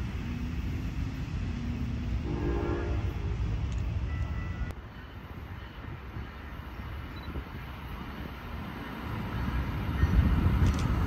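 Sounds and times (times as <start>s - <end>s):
train horn chord: 2.2s - 3.4s.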